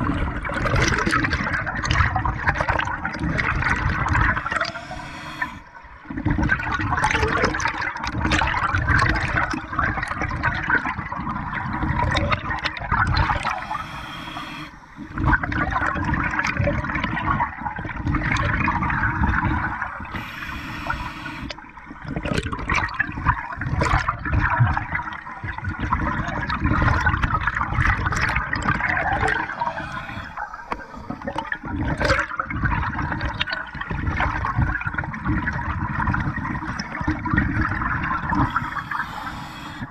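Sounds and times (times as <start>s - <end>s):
scuba regulator bubbling exhalations: 0.6s - 7.8s, 9.9s - 17.4s, 18.2s - 39.9s
hissing regulator inhalation: 4.2s - 5.8s, 13.1s - 15.4s, 19.6s - 21.6s, 28.8s - 32.1s, 38.2s - 39.9s.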